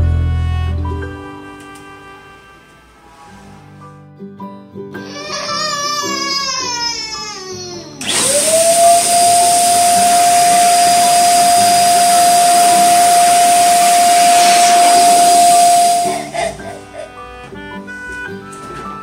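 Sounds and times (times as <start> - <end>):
electric balloon pump whine: 8.0 - 16.6
hiss of rushing air: 9.9 - 16.5.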